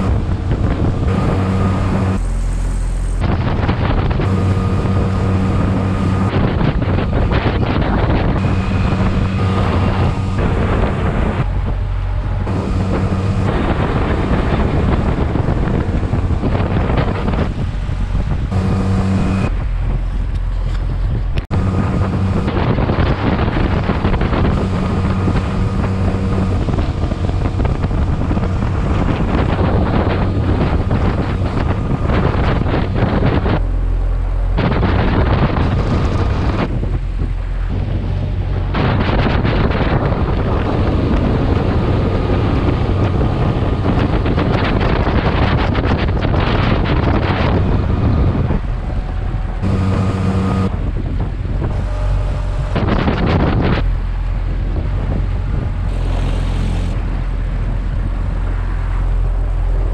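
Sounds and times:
motorboat engine running: 0:00.0 - 0:59.9
spray rushing along hull: 0:00.0 - 0:59.9
wind buffeting microphone: 0:00.0 - 0:59.9.

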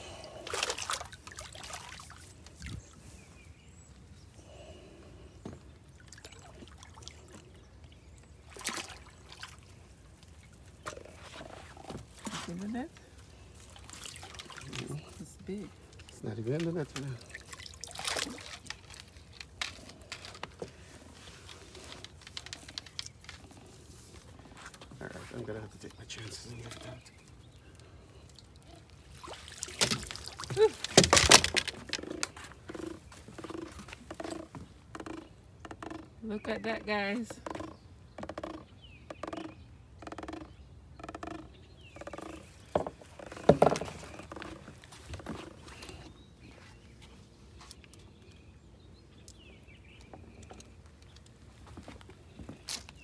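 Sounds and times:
fish thrashing and splashing: 0:00.1 - 0:02.7, 0:08.4 - 0:12.4, 0:13.6 - 0:15.1, 0:15.9 - 0:20.4, 0:28.2 - 0:34.5
fish splashing in a net: 0:00.4 - 0:02.2, 0:08.5 - 0:09.6, 0:17.2 - 0:19.1, 0:29.1 - 0:31.9
net knocking on wooden dock: 0:36.8 - 0:44.6.

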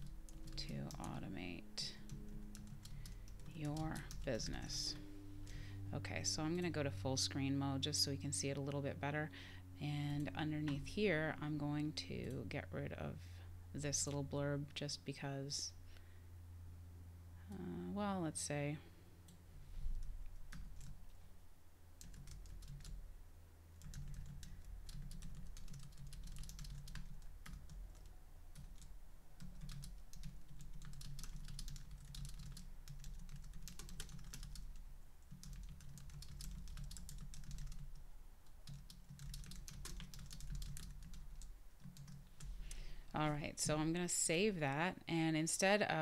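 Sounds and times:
typing on keyboard: 0:00.0 - 0:01.2, 0:02.1 - 0:04.4, 0:20.0 - 0:21.0, 0:22.0 - 0:23.0, 0:23.8 - 0:38.0, 0:38.6 - 0:42.3
low steady hum: 0:00.0 - 0:46.0.

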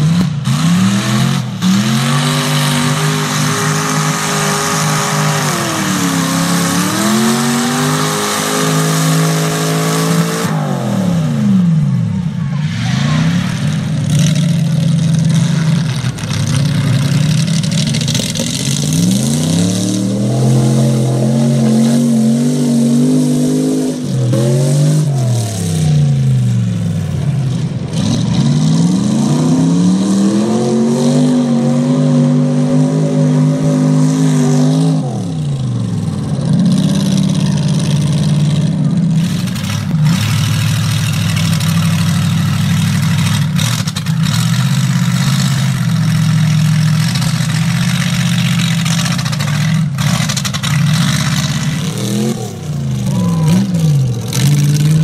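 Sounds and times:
truck engine revving hard: 0:00.0 - 0:55.0
tyres churning through mud: 0:00.0 - 0:55.0.

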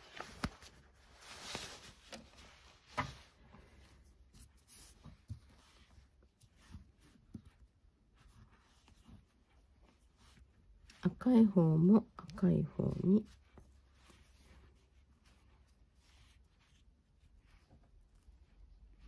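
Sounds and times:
cord rustling and tapping: 0:00.0 - 0:11.2.

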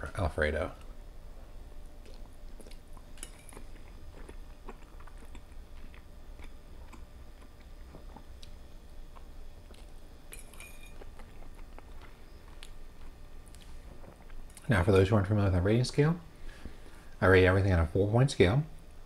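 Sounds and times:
chewing with wet mouth clicks: 0:01.8 - 0:14.7
fork clinking on plate: 0:10.3 - 0:11.0.

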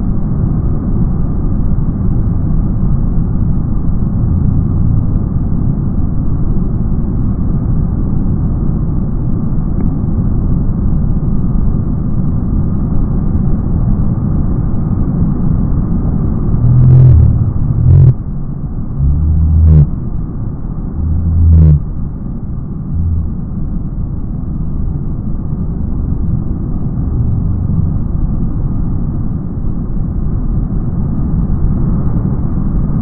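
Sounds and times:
heavy low thumps: 0:16.5 - 0:18.2, 0:19.0 - 0:19.9, 0:20.9 - 0:21.9, 0:22.9 - 0:23.4.

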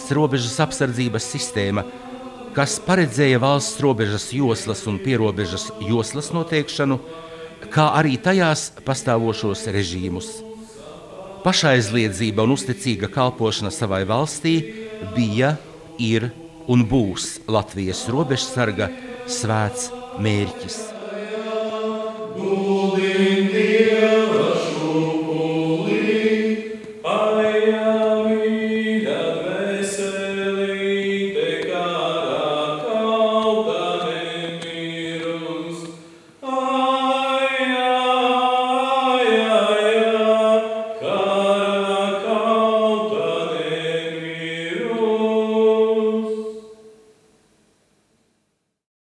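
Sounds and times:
choir singing held chords: 0:00.0 - 0:47.1.

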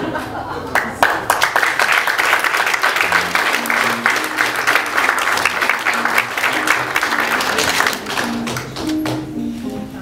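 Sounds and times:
audience applauding: 0:00.7 - 0:09.2
low background music: 0:02.5 - 0:10.0.

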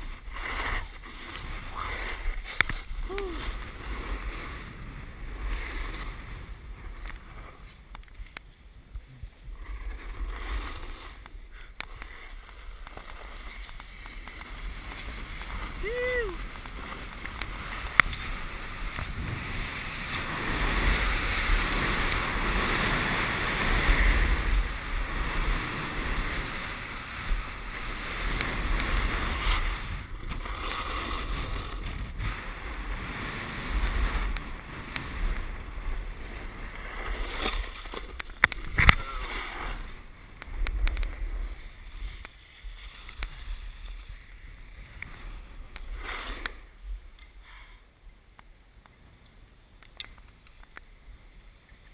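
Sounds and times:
snowboard scraping snow: 0:00.0 - 0:47.2
wind buffeting microphone: 0:12.4 - 0:45.8.

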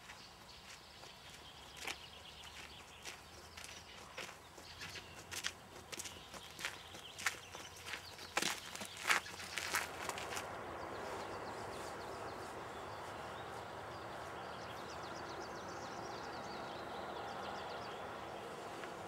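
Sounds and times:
footsteps on gravel: 0:00.0 - 0:10.6
small birds chirping: 0:00.0 - 0:19.0
steady outdoor hiss: 0:00.0 - 0:19.0.

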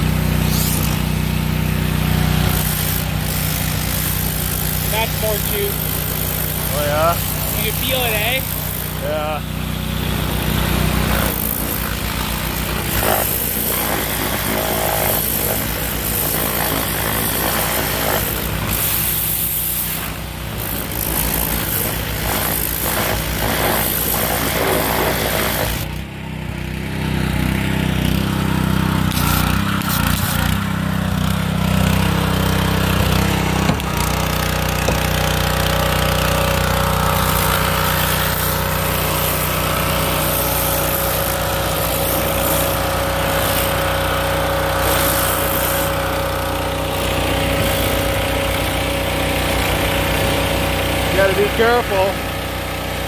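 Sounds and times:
small engine running under load: 0:00.0 - 0:53.0
pressure washer spray hiss: 0:00.2 - 0:01.2, 0:01.8 - 0:09.2, 0:11.0 - 0:25.9, 0:32.7 - 0:48.1.

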